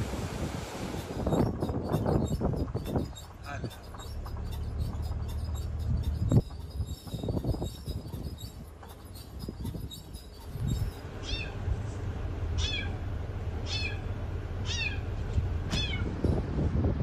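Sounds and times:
low steady rumble: 0:00.0 - 0:17.0
cat meowing: 0:11.2 - 0:11.6, 0:13.7 - 0:14.0, 0:15.7 - 0:16.1.

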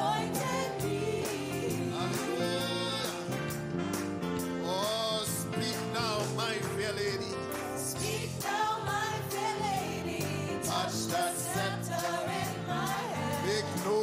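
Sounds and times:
instrumental backing with bass: 0:00.0 - 0:14.0
person singing with vibrato: 0:00.8 - 0:03.3.

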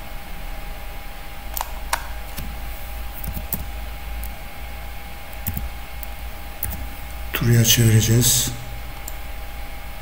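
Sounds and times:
faint hum: 0:00.0 - 0:10.0
computer keyboard keystrokes: 0:03.2 - 0:04.4, 0:05.3 - 0:05.7, 0:06.6 - 0:06.9.

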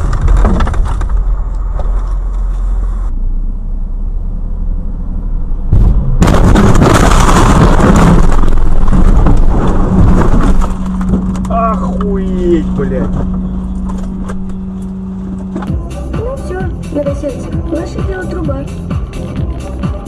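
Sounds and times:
car road and engine rumble: 0:00.0 - 0:20.0
loud rough noise: 0:05.7 - 0:15.7.

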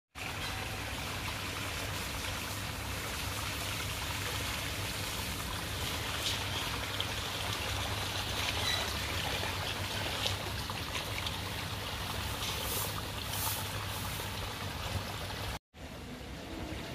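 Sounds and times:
water trickling over rocks: 0:00.1 - 0:15.6.

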